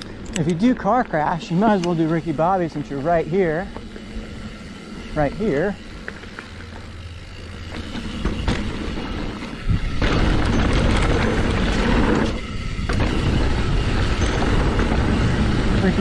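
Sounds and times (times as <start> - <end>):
bike tyres on dirt trail: 0.0 - 16.0
wind buffeting microphone: 8.4 - 16.0.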